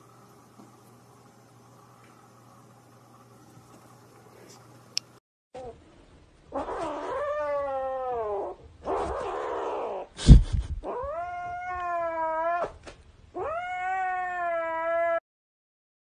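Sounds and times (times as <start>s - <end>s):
cat yowling: 6.5s - 10.1s, 10.8s - 12.8s, 13.4s - 15.2s.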